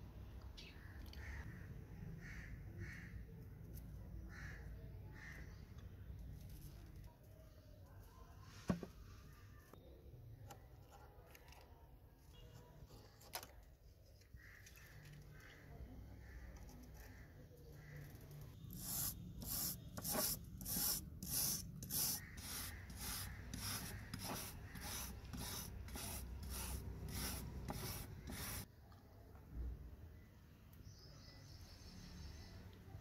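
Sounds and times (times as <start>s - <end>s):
wire brush scrubbing metal: 18.7s - 28.7s.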